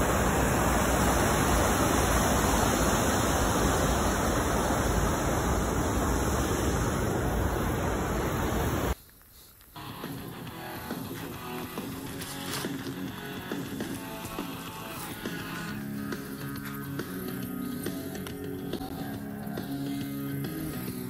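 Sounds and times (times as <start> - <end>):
river water pouring over weir: 0.0 - 9.0.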